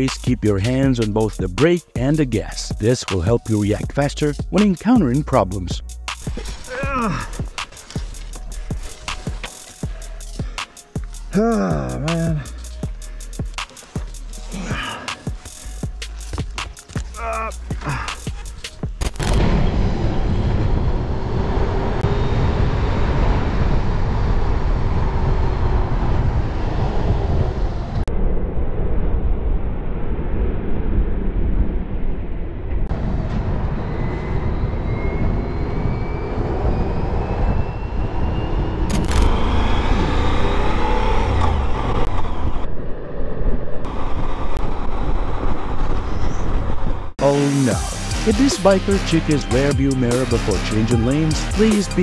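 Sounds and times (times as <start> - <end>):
road and wind noise: 18.3 - 47.2
rising whine: 19.0 - 48.4.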